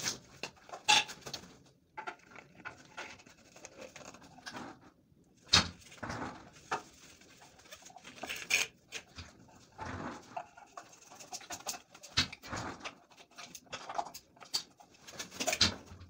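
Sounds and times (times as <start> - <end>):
plastic fittings clicking and knocking: 7.7 - 16.0.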